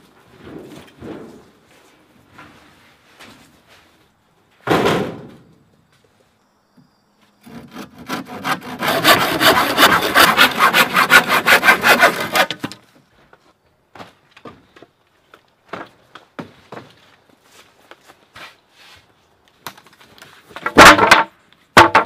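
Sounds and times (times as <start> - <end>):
hand saw cutting wood: 7.4 - 12.8.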